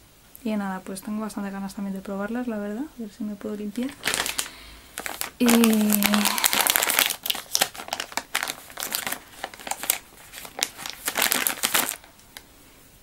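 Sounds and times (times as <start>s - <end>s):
paper or plastic crinkling: 3.8s - 12.4s.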